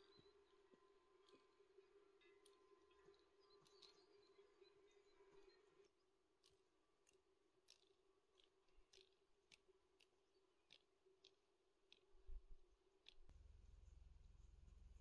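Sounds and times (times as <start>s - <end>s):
faint clicks: 1.2s - 15.0s
faint steady hum: 12.2s - 15.0s.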